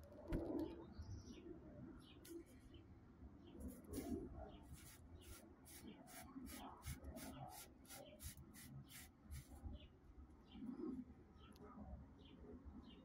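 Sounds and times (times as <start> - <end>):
cardboard tubes scratching: 3.8 - 9.6.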